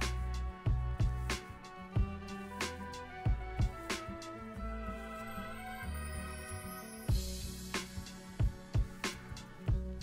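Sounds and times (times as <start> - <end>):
drum beat: 0.0 - 2.4, 3.3 - 4.0, 7.1 - 10.0.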